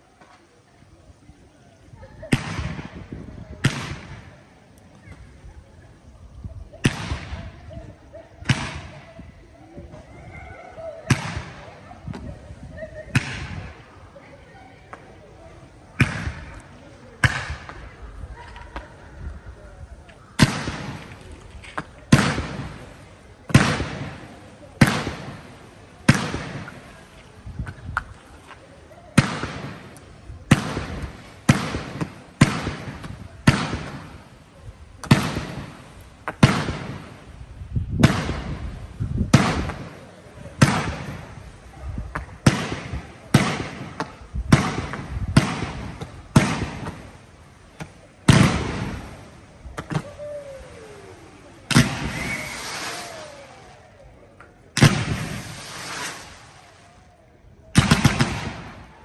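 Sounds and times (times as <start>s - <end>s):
fireworks bangs: 2.3s - 5.4s, 6.8s - 10.1s, 11.0s - 14.0s, 15.9s - 18.9s, 20.4s - 59.0s
falling firework whistle: 49.9s - 54.2s, 54.8s - 59.0s.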